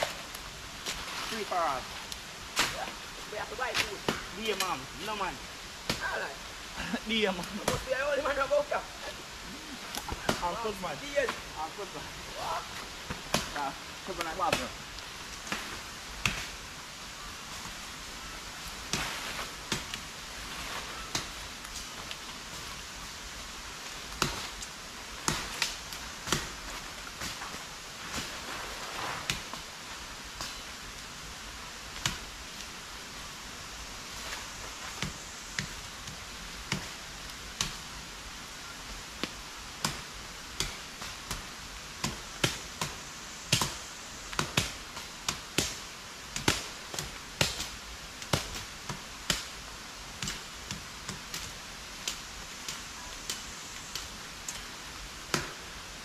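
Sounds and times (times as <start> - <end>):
machete chopping brush: 0.0 - 3.0, 3.6 - 5.2, 9.9 - 11.5, 13.0 - 14.8, 15.4 - 16.6, 18.8 - 22.8, 24.1 - 30.8, 31.9 - 32.4, 34.1 - 37.9, 39.2 - 55.8
steady hiss: 0.0 - 56.0.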